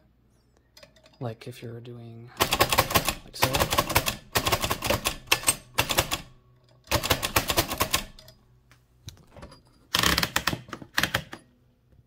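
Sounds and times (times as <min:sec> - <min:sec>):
typewriter clacking: 0:02.4 - 0:06.3, 0:06.9 - 0:08.3, 0:10.0 - 0:11.4.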